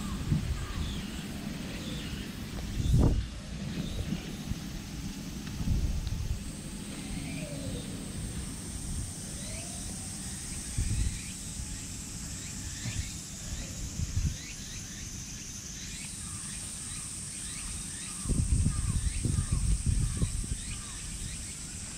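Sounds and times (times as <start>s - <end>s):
high-pitched drone: 0.0s - 14.6s.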